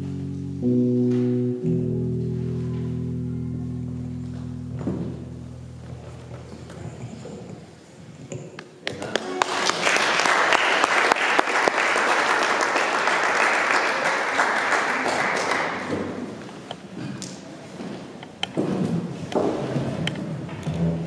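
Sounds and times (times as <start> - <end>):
congregation applauding: 8.8 - 16.4.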